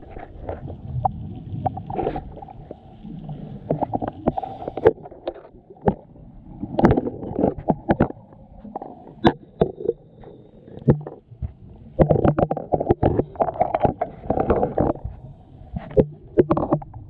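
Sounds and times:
low underwater rumble: 0.0 - 17.0
sharp clicks and knocks: 15.9 - 17.0.

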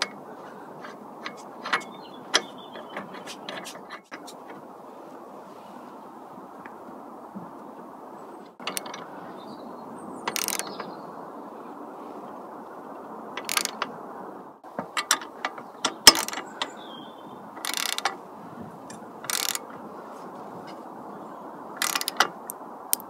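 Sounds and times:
steady background noise: 0.0 - 23.0
ratchet wrench clicking: 10.3 - 10.8, 13.4 - 13.8, 16.1 - 16.5, 17.6 - 18.1, 19.3 - 19.7, 21.8 - 22.3.

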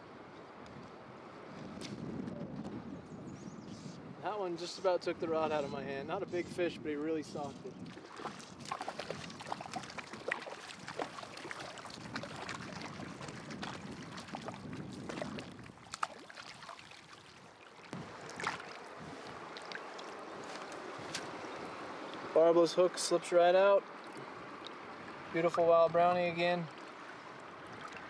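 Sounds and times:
fish thrashing and splashing: 7.8 - 21.5
river current rushing: 8.0 - 14.6, 15.2 - 28.0.

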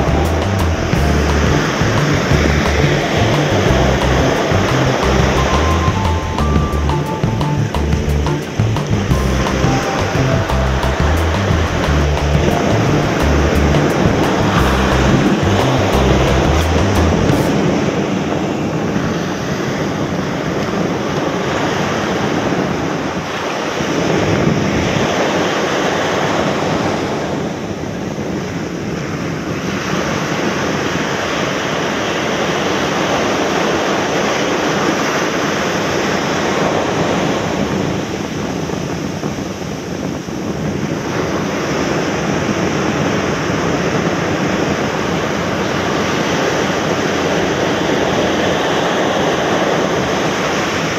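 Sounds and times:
surf breaking on a beach: 0.0 - 6.4, 8.3 - 50.9
wind buffeting the microphone: 11.3 - 50.9.

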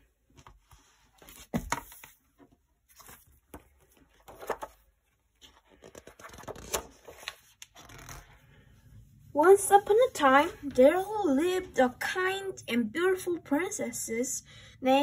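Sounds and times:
book pages turning: 0.3 - 8.4.

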